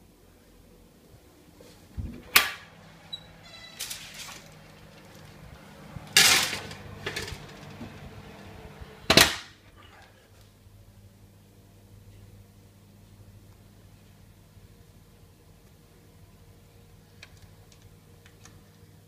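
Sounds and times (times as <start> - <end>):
baking tray clattering on oven rack: 6.2 - 7.9.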